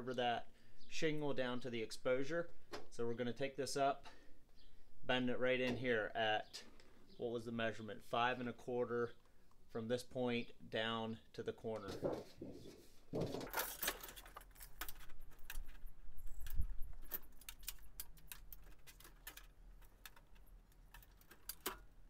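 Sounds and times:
scraping rustle: 0:11.8 - 0:21.9
sheet metal rattling and clicking: 0:11.8 - 0:22.0.

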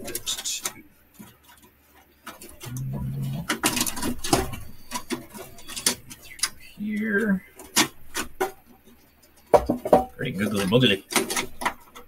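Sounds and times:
plastic and metal clicks and knocks: 0:00.0 - 0:06.6, 0:07.5 - 0:12.0.

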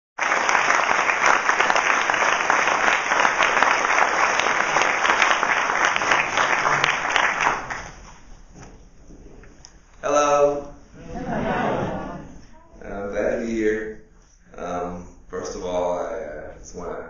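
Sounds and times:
audience applauding: 0:00.2 - 0:08.2.

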